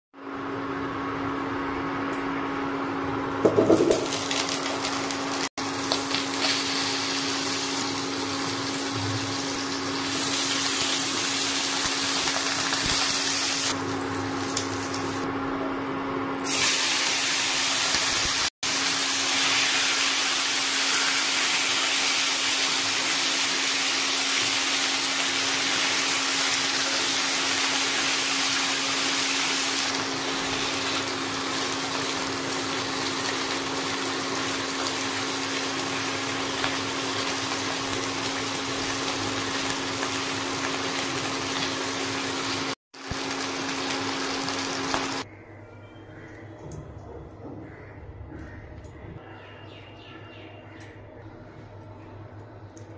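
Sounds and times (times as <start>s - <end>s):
oil sizzling in pan: 3.4s - 15.3s, 16.4s - 45.3s
chicken sizzling in hot oil: 3.5s - 15.3s, 16.4s - 45.3s.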